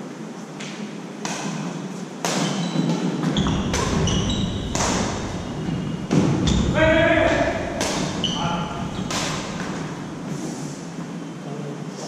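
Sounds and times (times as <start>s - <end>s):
racket hitting shuttlecock: 0.6s - 10.3s
shoe squeaks: 2.4s - 10.5s.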